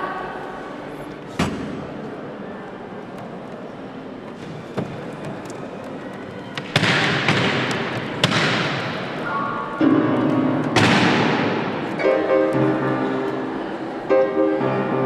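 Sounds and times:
repeated piano notes: 8.8 - 15.0
held piano notes: 9.4 - 15.0
piano percussive crashes: 9.8 - 13.2.

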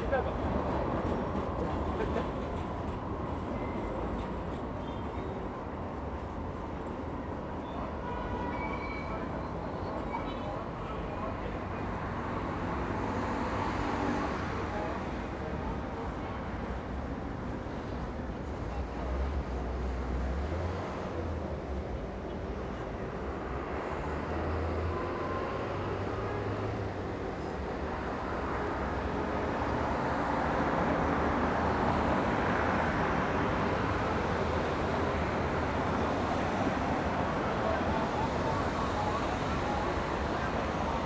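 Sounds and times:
steady traffic noise: 0.0 - 41.0
vehicles passing: 10.4 - 41.0.

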